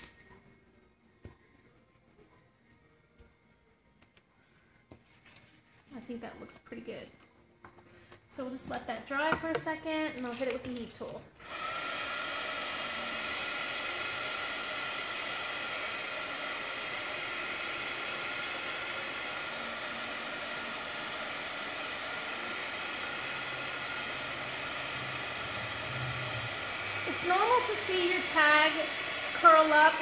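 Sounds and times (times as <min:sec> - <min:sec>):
heat tool fan hissing: 0:11.4 - 0:30.0.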